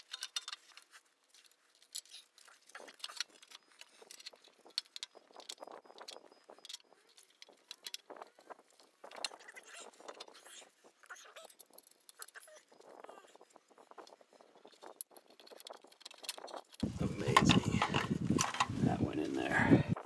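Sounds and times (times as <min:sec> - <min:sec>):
light metal scraping: 0:14.4 - 0:20.0.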